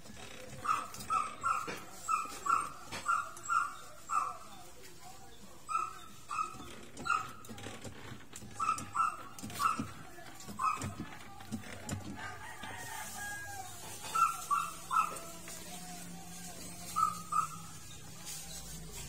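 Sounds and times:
animal high calls: 0:14.0 - 0:15.5, 0:16.9 - 0:17.9.

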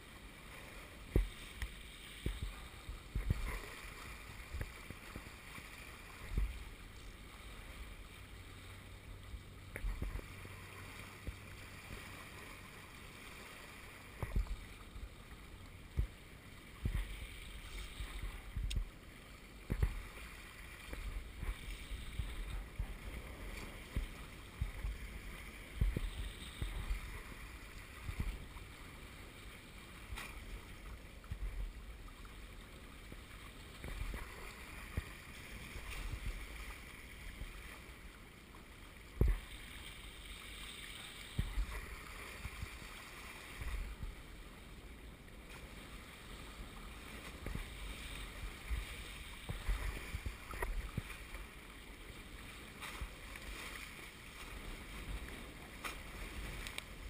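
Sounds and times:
water splashing along hulls: 0:00.0 - 0:57.0
wind buffeting microphone: 0:02.2 - 0:03.6, 0:20.9 - 0:28.6.

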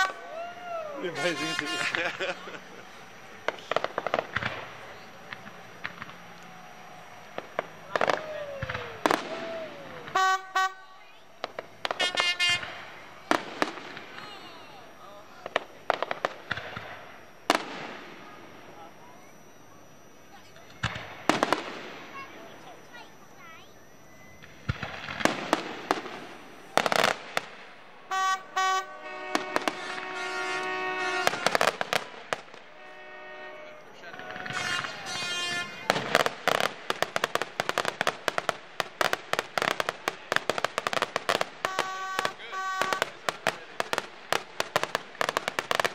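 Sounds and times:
fireworks bangs: 0:00.0 - 0:45.9
long steady pitched sound: 0:00.0 - 0:45.9
short pitched blasts: 0:00.0 - 0:45.9
horn tooting: 0:01.0 - 0:03.0, 0:10.1 - 0:11.0, 0:12.0 - 0:12.8, 0:28.1 - 0:31.7, 0:32.7 - 0:36.0, 0:41.6 - 0:43.2
falling whistles: 0:04.8 - 0:15.7, 0:16.8 - 0:27.2, 0:41.6 - 0:43.2.

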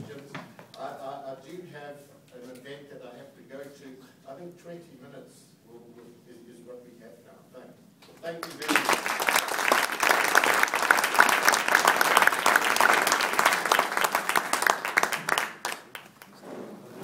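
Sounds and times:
audience applauding: 0:08.4 - 0:16.4.

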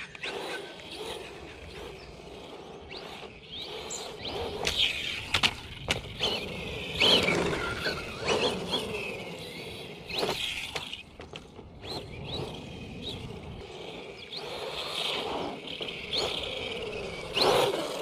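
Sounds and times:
chassis and tyre clatter: 0:00.0 - 0:18.0
rc car motor whine: 0:00.0 - 0:18.0.

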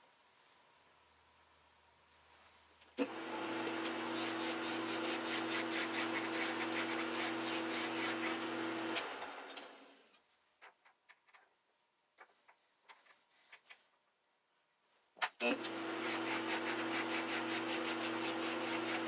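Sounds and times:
metal lathe running: 0:03.0 - 0:09.4, 0:15.6 - 0:19.0
file rubbing on spinning metal: 0:03.9 - 0:08.7, 0:15.9 - 0:19.0.

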